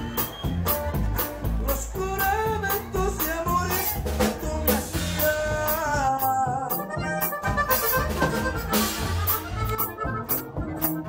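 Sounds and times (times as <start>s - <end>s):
accordion melody: 0.0s - 11.0s
bass: 0.0s - 11.0s
drum strikes: 7.5s - 11.0s.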